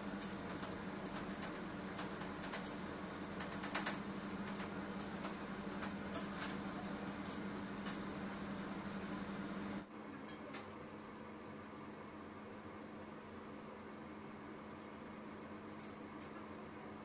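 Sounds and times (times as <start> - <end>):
machine humming: 0.0 - 9.9.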